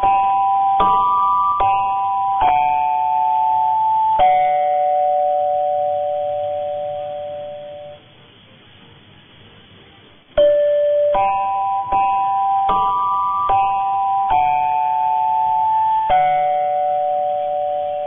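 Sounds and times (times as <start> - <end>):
faint radio hiss: 0.0 - 18.0
radio bell-like chimes: 10.4 - 18.0.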